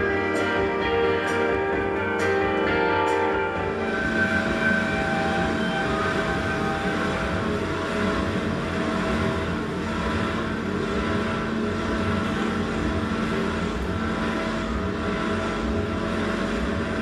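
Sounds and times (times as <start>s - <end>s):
dense rumbling drone: 0.0s - 17.0s.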